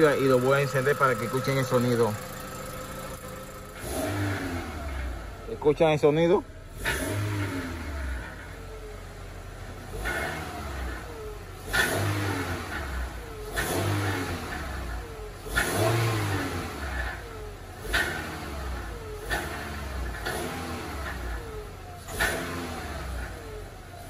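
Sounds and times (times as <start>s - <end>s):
car engine revving: 0.0s - 24.0s
rattling in exhaust: 0.0s - 24.0s.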